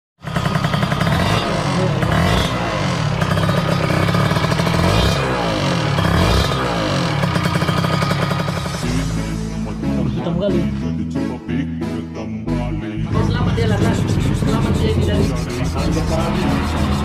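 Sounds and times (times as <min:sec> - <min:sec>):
two-stroke motorcycle engine revving: 0:00.2 - 0:09.7, 0:13.1 - 0:17.0
rough engine rattling noise: 0:00.2 - 0:09.8, 0:13.1 - 0:17.0.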